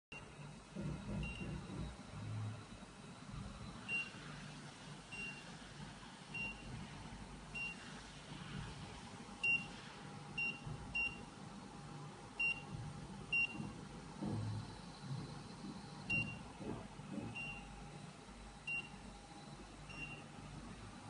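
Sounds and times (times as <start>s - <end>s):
low machine hum: 0.1s - 21.0s.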